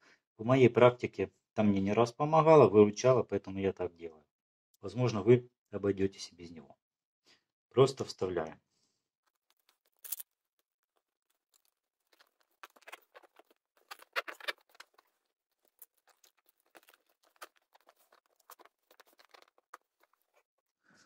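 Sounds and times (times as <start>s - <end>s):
fingers rubbing vinyl: 12.1s - 20.4s.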